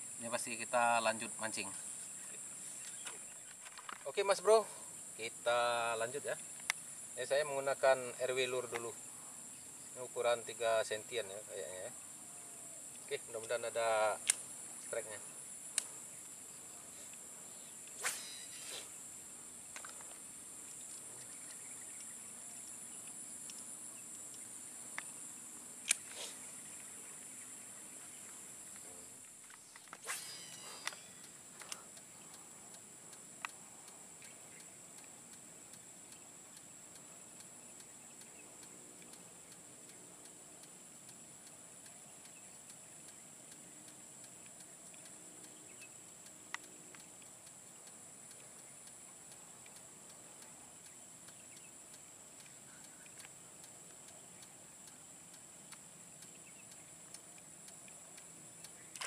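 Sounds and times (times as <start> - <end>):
high-pitched insect chorus: 0.0 - 59.0
sharp clicks: 12.9 - 15.1, 15.7 - 16.4, 25.8 - 26.9, 28.2 - 59.0
faint even ticking: 30.2 - 59.0.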